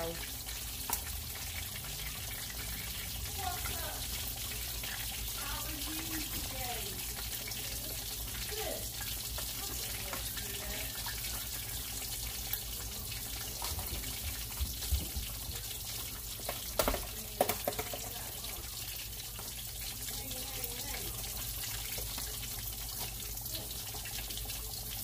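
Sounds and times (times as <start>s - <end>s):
fish sizzling in oil: 0.0s - 25.0s.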